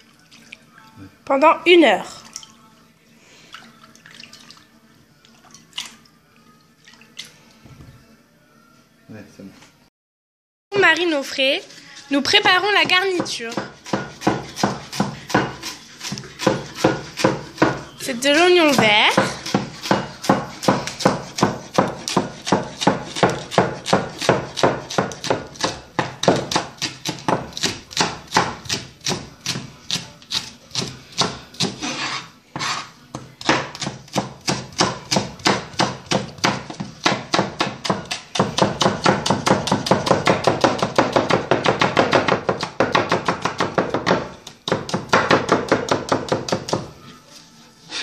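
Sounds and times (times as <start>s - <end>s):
knife chopping on plastic board: 12.2s - 46.9s.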